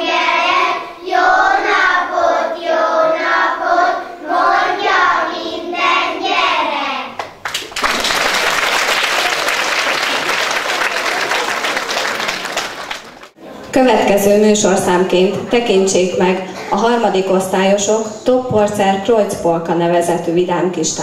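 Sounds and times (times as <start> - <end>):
children reciting in unison: 0.0 - 7.2
audience applauding: 7.2 - 13.4.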